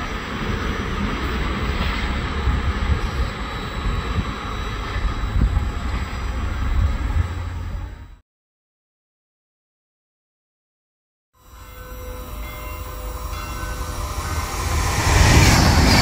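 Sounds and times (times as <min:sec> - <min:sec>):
train rumbling: 0:00.0 - 0:08.2, 0:11.4 - 0:16.0.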